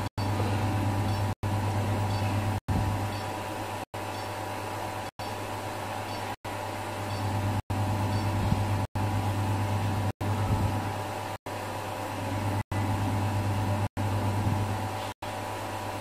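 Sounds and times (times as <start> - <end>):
low hum with hiss: 0.0 - 16.0.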